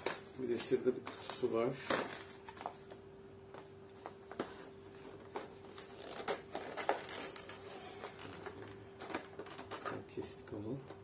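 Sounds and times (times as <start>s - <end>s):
faint steady hum: 0.0s - 11.0s
cardboard rustling and scraping: 4.0s - 10.6s.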